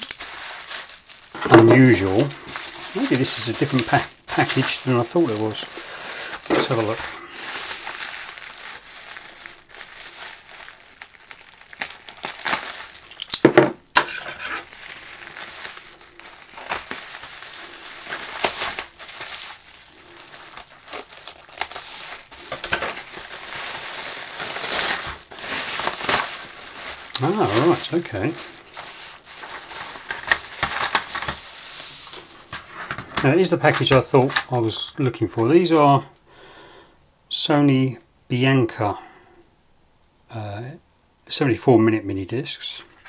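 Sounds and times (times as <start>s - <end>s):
packing tape pulled: 0.0s - 33.0s
bubble wrap crinkling: 0.0s - 35.5s.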